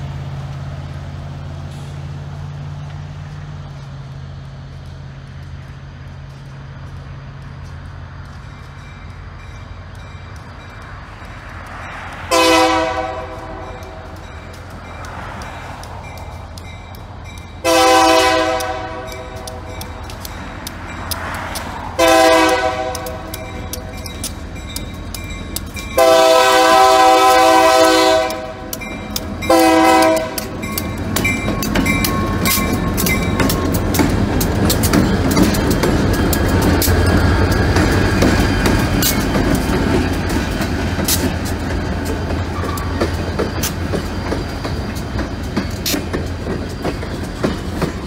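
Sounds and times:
diesel locomotive rumbling: 0:00.0 - 0:48.0
crossing signal bell dinging: 0:08.3 - 0:39.4, 0:42.1 - 0:48.0
air horn blast: 0:12.3 - 0:14.1, 0:17.6 - 0:19.7, 0:22.0 - 0:23.3, 0:26.0 - 0:28.7, 0:29.5 - 0:30.5.

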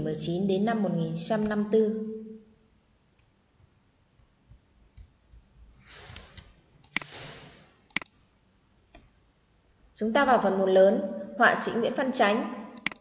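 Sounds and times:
computer mouse clicks: 0:06.1 - 0:07.2, 0:07.9 - 0:08.3, 0:12.8 - 0:13.0.

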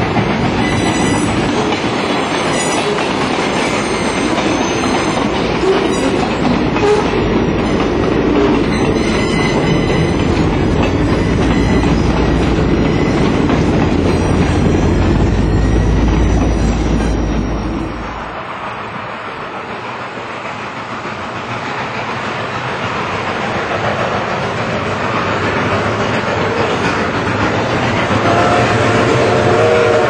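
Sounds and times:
train wheels rumbling on track: 0:00.0 - 0:30.0
thin wheel squeal: 0:00.6 - 0:01.4, 0:14.0 - 0:18.1.

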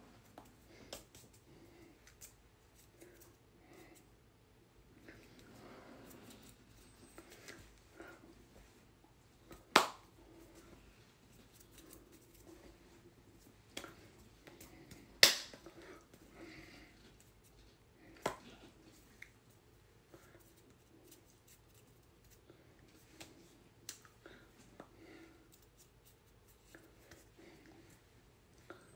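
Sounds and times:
hands slapping: 0:00.3 - 0:01.4, 0:09.5 - 0:10.1, 0:13.7 - 0:15.7, 0:18.2 - 0:18.5.

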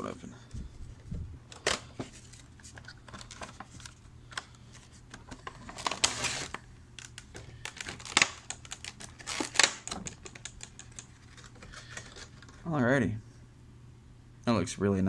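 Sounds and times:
plastic bag crinkling: 0:05.4 - 0:12.6.

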